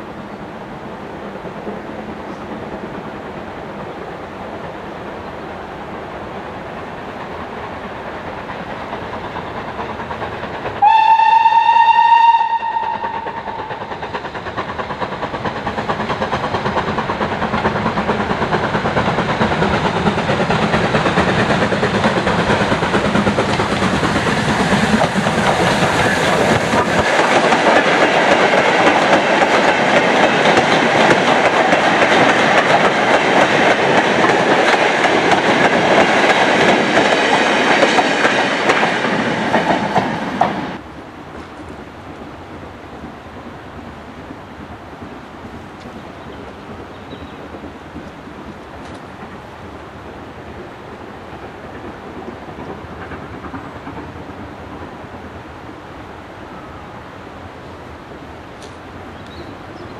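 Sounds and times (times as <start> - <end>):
steam locomotive hauling train: 0.0 - 59.9
steam locomotive whistle: 10.8 - 13.8.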